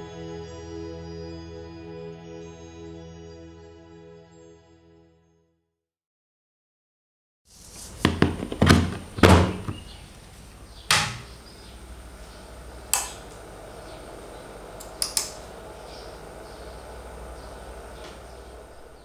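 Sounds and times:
steady low hum: 0:08.6 - 0:19.0
amplifier switch clicks: 0:12.9 - 0:13.4, 0:14.8 - 0:15.4.

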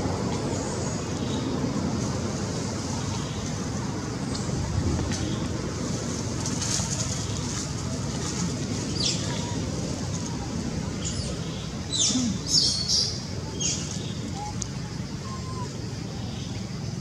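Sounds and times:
distant road traffic rumble: 0:00.0 - 0:17.0
small birds chirping: 0:10.9 - 0:17.0.

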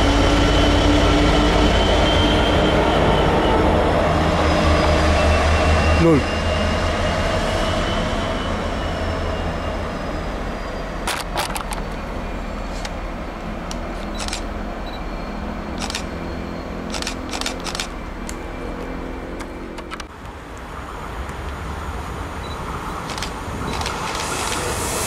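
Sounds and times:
diesel locomotive engine drone: 0:00.0 - 0:25.0
sharp clicks: 0:15.8 - 0:16.1, 0:16.9 - 0:18.4, 0:23.1 - 0:24.7.

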